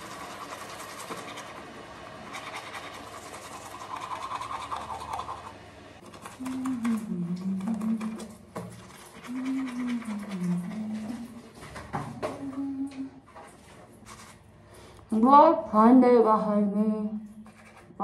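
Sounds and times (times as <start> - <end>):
toothbrush scrubbing teeth: 0.0 - 11.5, 13.3 - 14.4, 17.4 - 18.0.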